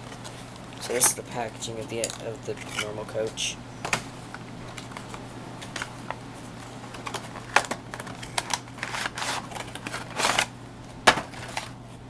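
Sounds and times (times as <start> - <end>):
packaging rustling: 3.8 - 10.5, 11.1 - 11.8.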